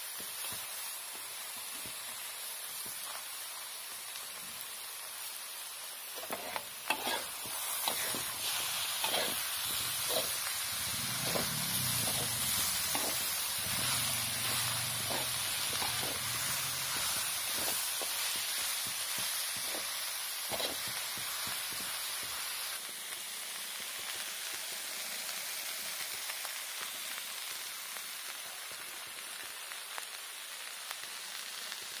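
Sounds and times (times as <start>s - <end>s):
food sizzling in a pan: 0.0s - 32.0s
spatula scraping a pan: 6.2s - 18.4s, 19.6s - 21.3s.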